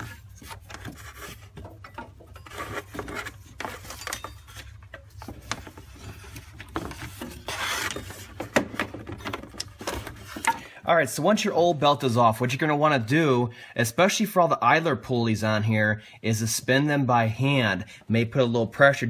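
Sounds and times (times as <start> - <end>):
rubber belt rubbing and scraping: 0.0 - 8.5.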